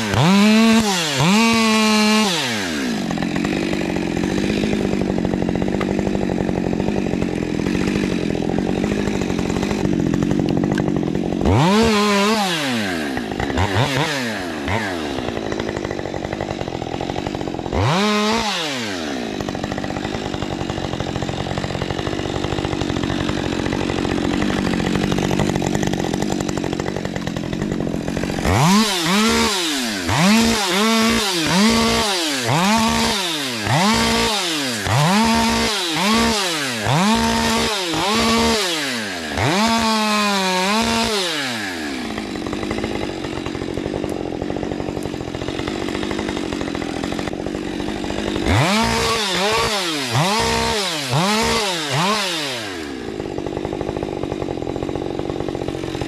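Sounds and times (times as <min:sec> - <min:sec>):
chainsaw idling: 0:00.0 - 0:56.0
chainsaw revving: 0:00.0 - 0:56.0.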